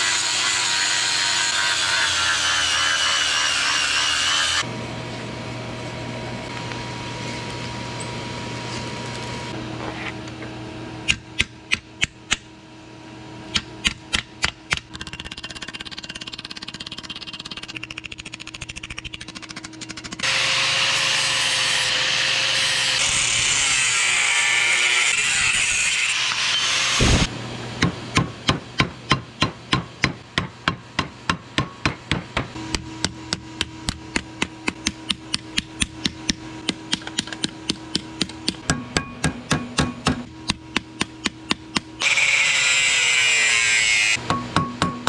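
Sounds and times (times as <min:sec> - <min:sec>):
angle grinder on steel: 0:00.0 - 0:04.7, 0:20.2 - 0:27.3, 0:42.0 - 0:44.2
hammer striking steel on anvil: 0:27.8 - 0:42.0, 0:44.2 - 0:45.0.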